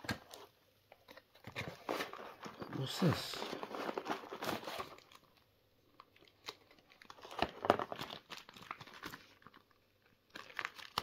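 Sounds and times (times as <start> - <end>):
plastic packing crinkling: 0.0 - 11.0.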